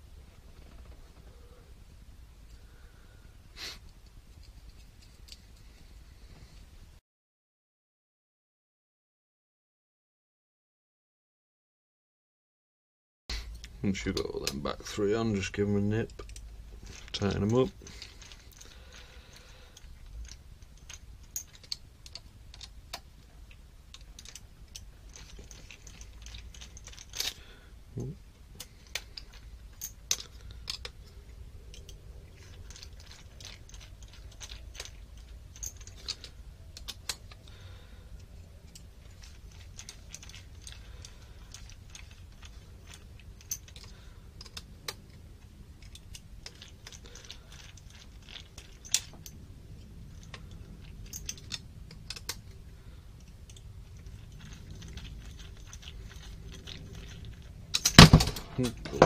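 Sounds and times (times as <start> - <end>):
low room hum: 0.0 - 7.0, 13.3 - 59.0
light clicks of tools and screws: 3.8 - 5.7, 13.5 - 27.6, 28.5 - 59.0.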